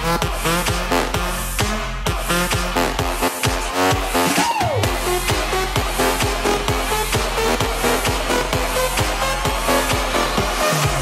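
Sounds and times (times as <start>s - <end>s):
electronic dance music: 0.0s - 11.0s
kick drum: 0.0s - 11.0s.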